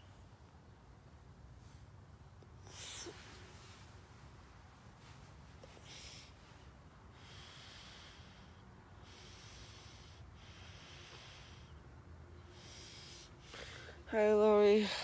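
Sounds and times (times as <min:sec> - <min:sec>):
person breathing through the nose: 0:05.6 - 0:14.0.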